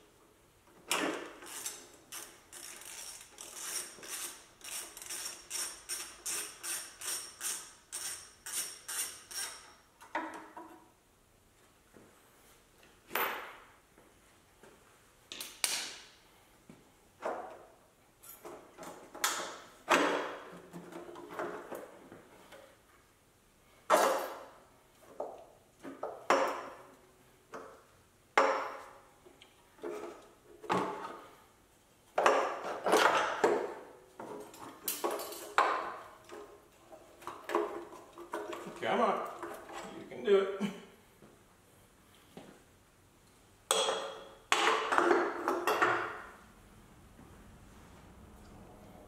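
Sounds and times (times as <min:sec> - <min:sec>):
metal parts clinking and clanking: 0:34.4 - 0:35.7.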